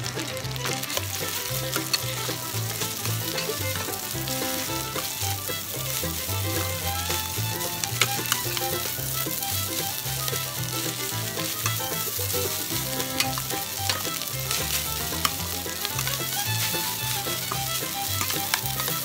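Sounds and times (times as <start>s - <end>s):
metal spatula scraping pan: 0.0s - 19.0s
rice sizzling in a pan: 0.0s - 19.0s
spatula knocking pan clicks: 5.9s - 19.0s.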